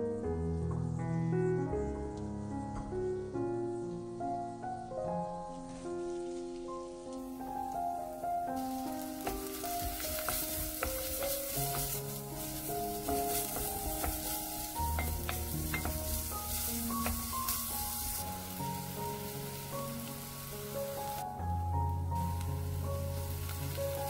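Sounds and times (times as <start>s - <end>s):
background music: 0.0s - 24.0s
onion sizzling in oil: 8.5s - 24.0s
wooden spoon tapping and scraping: 9.2s - 18.8s.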